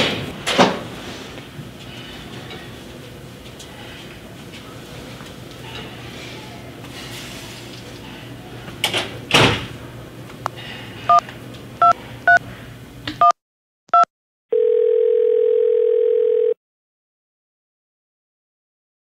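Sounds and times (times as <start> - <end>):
phone ringing tone: 14.5 - 16.6.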